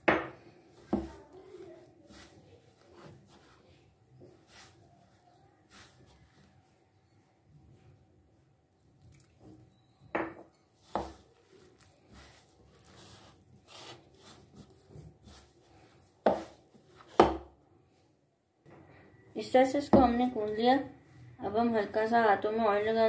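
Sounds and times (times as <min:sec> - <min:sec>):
dough squishing: 0:00.0 - 0:17.7.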